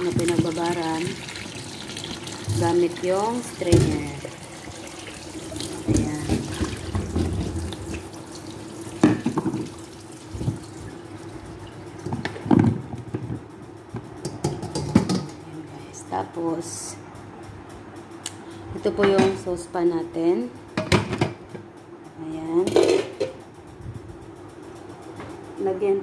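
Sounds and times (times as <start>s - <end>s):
water pouring into a metal sink: 0.0s - 12.0s
bowl and colander knocking: 5.8s - 7.9s.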